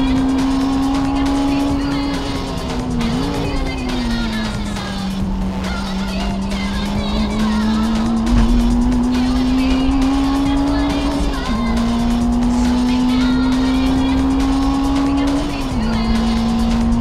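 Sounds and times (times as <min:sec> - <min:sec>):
car engine at high revs: 0:00.0 - 0:17.0.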